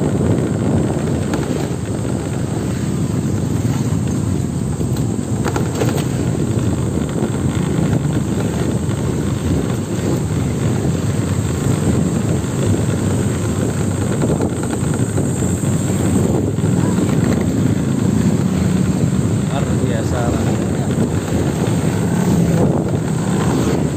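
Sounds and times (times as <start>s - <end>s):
motorcycles passing: 0.0s - 23.9s
wind rumble on microphone: 0.0s - 23.9s.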